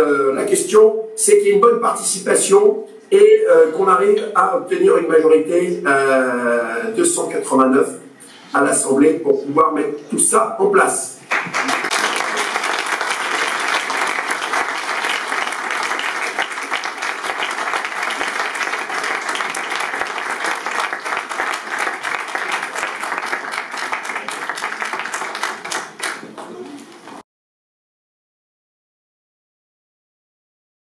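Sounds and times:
audience applauding: 0:11.3 - 0:27.0.

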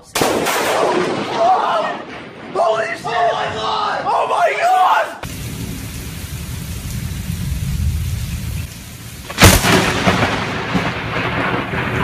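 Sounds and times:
sharp thunderclap: 0:00.2 - 0:02.7, 0:05.2 - 0:12.0
thunder rumbling: 0:00.2 - 0:04.1, 0:05.2 - 0:12.0.

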